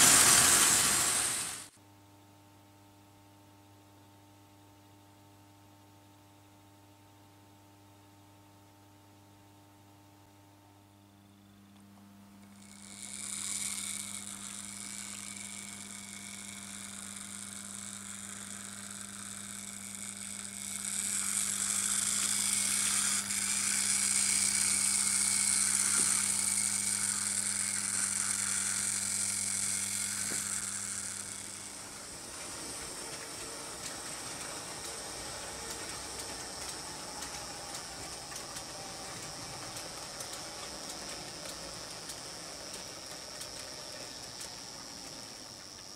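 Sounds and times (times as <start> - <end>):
model trains running on track: 0.0 - 1.7, 12.6 - 45.9
steady low hum: 0.0 - 1.7, 10.2 - 45.9.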